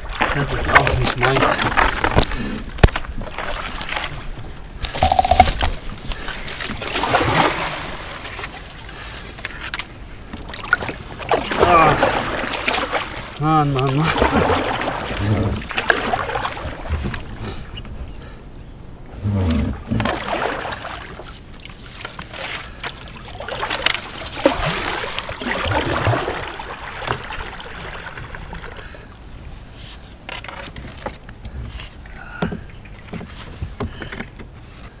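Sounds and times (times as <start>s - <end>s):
paddle splashing in water: 0.0s - 9.6s, 10.3s - 17.6s, 19.8s - 29.2s.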